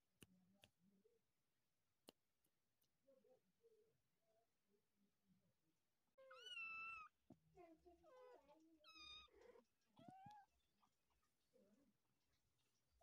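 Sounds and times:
kittens mewing: 6.2s - 7.2s.

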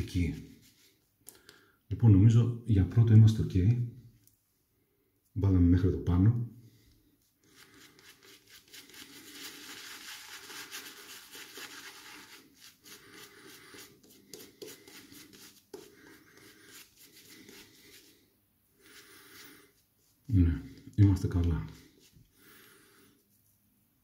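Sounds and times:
shaving brush rubbing lather: 0.0s - 1.1s, 7.4s - 20.5s, 21.2s - 22.3s.

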